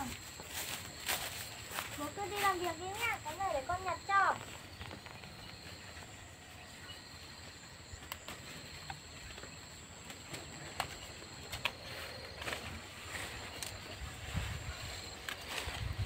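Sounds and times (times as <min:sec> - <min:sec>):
insects droning: 0:00.0 - 0:16.0
faint clicks and rustles: 0:07.0 - 0:16.0.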